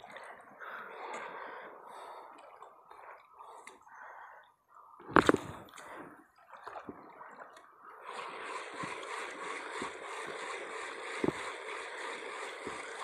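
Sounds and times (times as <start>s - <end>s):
small waves lapping on rocks: 5.0s - 13.0s.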